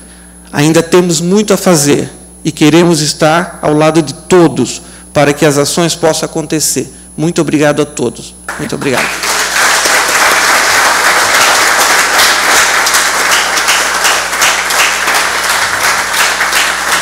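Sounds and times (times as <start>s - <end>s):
crowd applauding: 8.5s - 17.0s.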